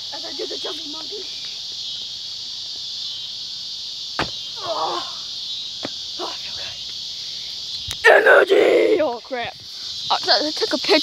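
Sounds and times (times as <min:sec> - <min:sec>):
insects chirring: 0:00.0 - 0:11.0
sharp thump: 0:04.2 - 0:04.4.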